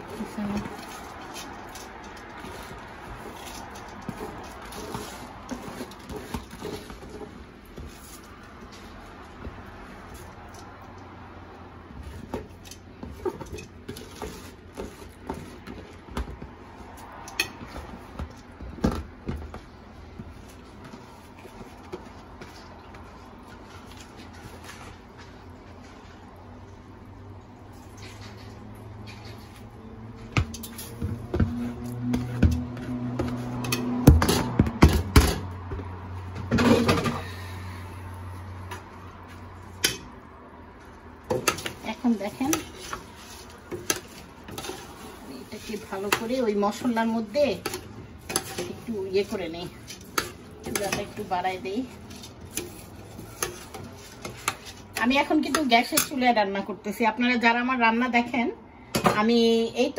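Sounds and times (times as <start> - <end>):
rice being stirred: 0.0 - 10.9, 11.9 - 18.7, 38.2 - 56.1.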